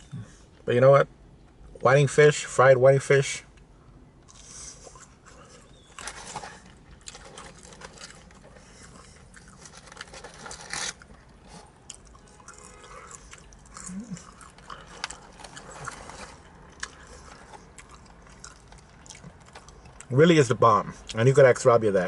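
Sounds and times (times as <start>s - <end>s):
chewing and crunching food: 4.2s - 20.2s
paper packaging rustling: 5.9s - 8.8s, 9.6s - 11.2s.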